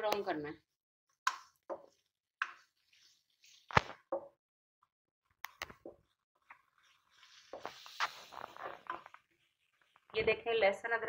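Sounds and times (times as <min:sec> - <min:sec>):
faint sizzling hiss: 0:06.7 - 0:11.0.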